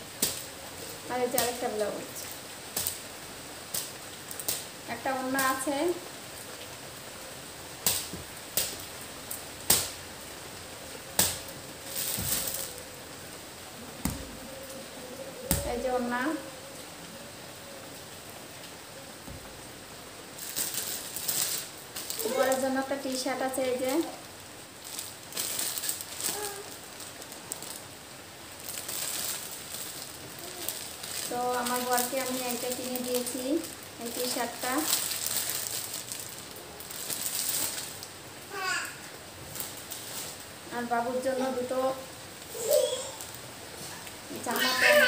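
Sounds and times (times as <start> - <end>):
fabric flicks and snaps: 9.6 - 10.0
plastic bag crinkling: 11.0 - 13.0, 20.4 - 24.2, 24.8 - 38.1, 39.4 - 40.6, 42.4 - 45.0
cloth rustling: 11.2 - 12.9.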